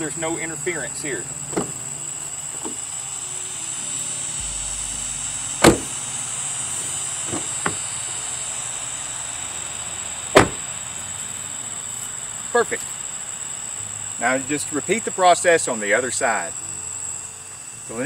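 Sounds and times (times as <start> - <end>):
car door slamming: 4.4 - 6.0, 10.3 - 10.6.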